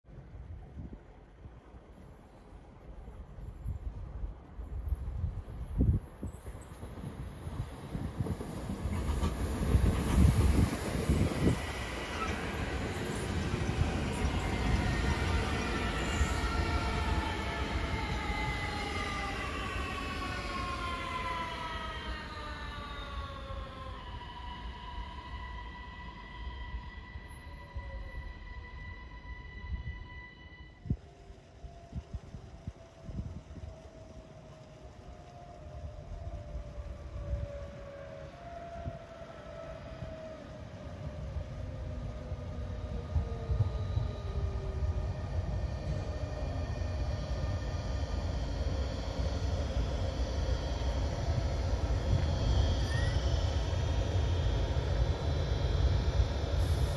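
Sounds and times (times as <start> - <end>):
wheels rumbling on rails: 0.2 - 20.9
electric train motor whine: 7.1 - 56.9.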